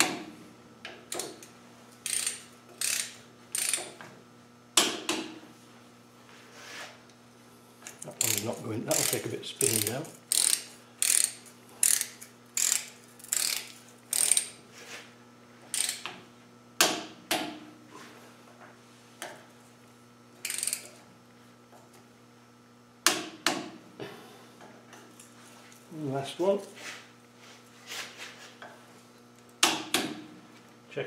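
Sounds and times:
ratchet wrench clicking: 2.0s - 3.9s, 8.2s - 14.6s, 15.7s - 16.1s, 20.4s - 20.9s.

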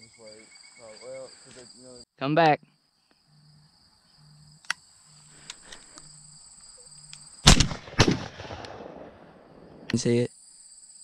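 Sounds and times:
insects buzzing: 0.0s - 11.0s
shotgun shots: 7.4s - 9.9s.

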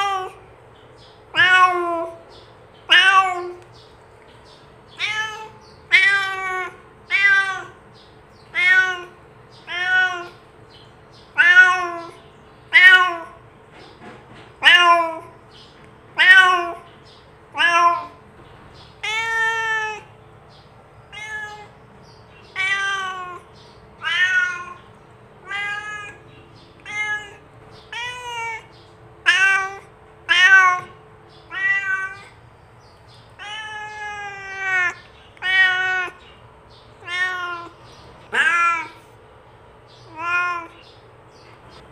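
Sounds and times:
cat meowing: 0.0s - 0.4s, 1.3s - 2.2s, 2.8s - 3.7s, 4.9s - 7.8s, 8.4s - 10.4s, 11.2s - 13.4s, 14.6s - 15.4s, 16.2s - 16.9s, 17.5s - 18.2s, 18.9s - 20.1s, 21.1s - 32.4s, 33.4s - 36.4s, 37.0s - 39.1s, 40.0s - 41.0s.

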